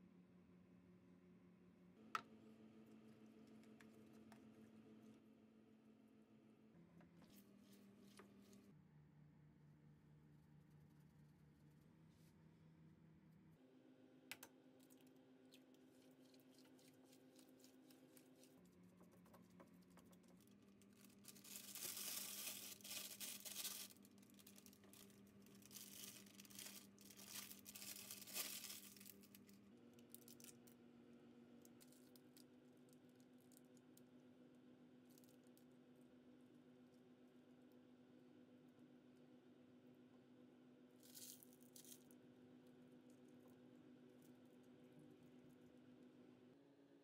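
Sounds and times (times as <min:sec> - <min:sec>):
plastic bag crinkling: 0:20.3 - 0:29.5.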